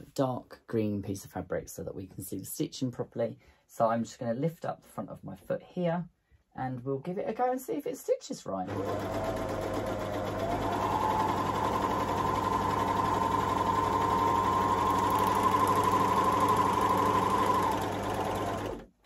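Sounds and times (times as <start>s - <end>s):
overlocker sewing machine humming: 8.7s - 19.0s.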